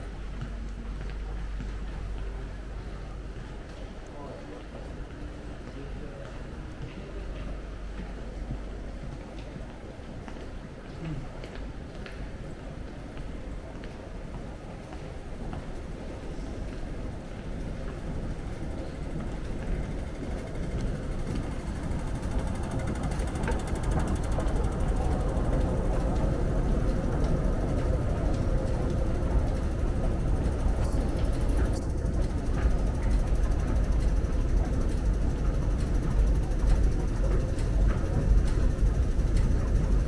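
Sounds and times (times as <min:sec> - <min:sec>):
escalator machinery rumble: 0:14.5 - 0:40.0.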